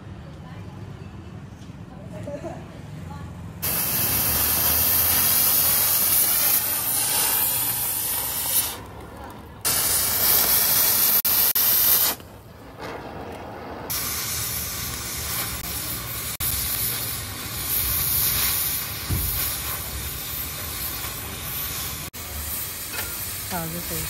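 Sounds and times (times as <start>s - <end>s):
loud gas hiss: 3.6s - 8.8s, 9.7s - 12.2s, 13.9s - 24.0s
low thump: 19.0s - 19.4s.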